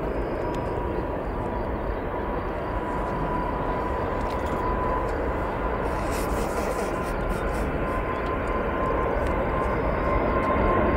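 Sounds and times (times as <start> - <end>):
jet engines rumbling and whining: 0.0 - 10.9.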